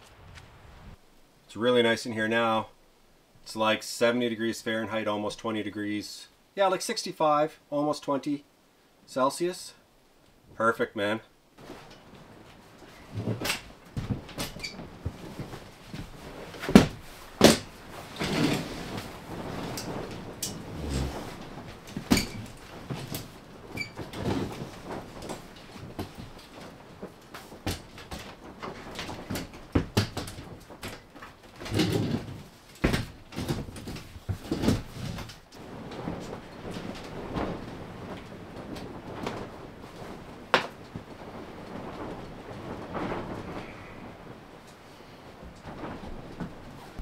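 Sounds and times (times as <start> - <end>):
fabric rustling: 11.6 - 47.0
metal cot frame clattering: 12.9 - 35.4.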